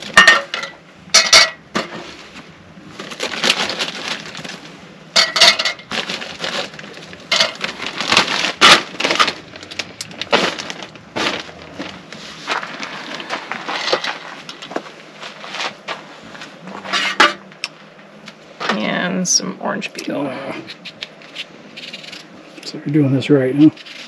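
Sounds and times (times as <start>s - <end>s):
ice cubes clinking into metal cups: 0.0s - 1.6s, 5.2s - 9.4s
plastic bag crinkling: 2.9s - 15.9s.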